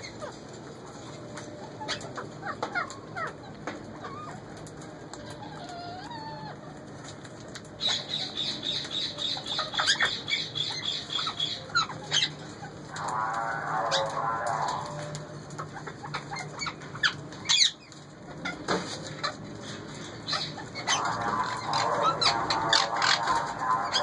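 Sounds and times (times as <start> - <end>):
parakeets chirping and whistling: 0.0 - 6.8, 7.6 - 24.0
parakeet chattering trill: 7.8 - 12.8, 20.1 - 24.0.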